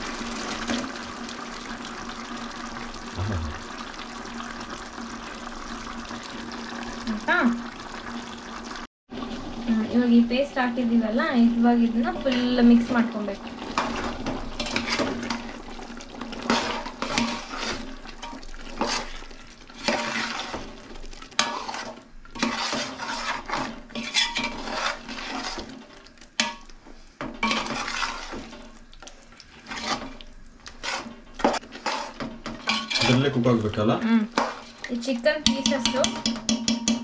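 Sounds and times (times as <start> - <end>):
spoon scraping metal pot: 21.4 - 25.8, 27.4 - 28.7, 29.6 - 33.3.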